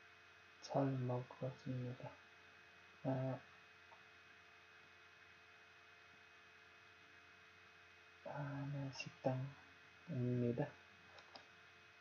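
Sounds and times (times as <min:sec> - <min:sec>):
electrical mains hum: 0:00.0 - 0:12.0
faint steady tones: 0:00.0 - 0:12.0
person speaking: 0:00.6 - 0:02.1, 0:03.0 - 0:03.4, 0:08.3 - 0:10.8.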